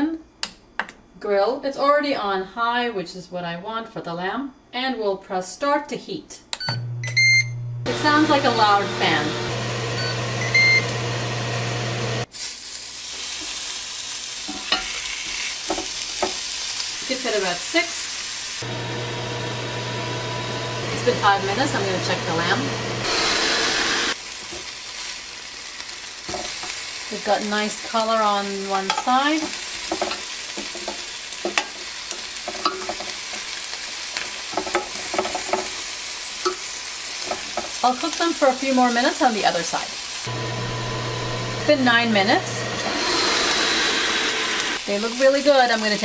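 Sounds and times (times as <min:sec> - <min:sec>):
grill fan humming: 0:06.8 - 0:12.3, 0:18.6 - 0:46.0
meat sizzling on a grill: 0:11.2 - 0:18.7, 0:21.2 - 0:40.9, 0:43.4 - 0:46.0.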